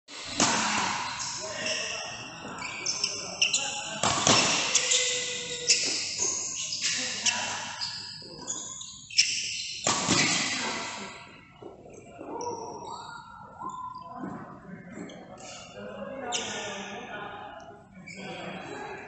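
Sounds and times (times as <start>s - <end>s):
shoe squeaks: 0.2s - 14.4s, 15.0s - 16.8s
racket hitting shuttlecock: 0.3s - 1.2s, 4.0s - 5.2s, 9.8s - 10.8s.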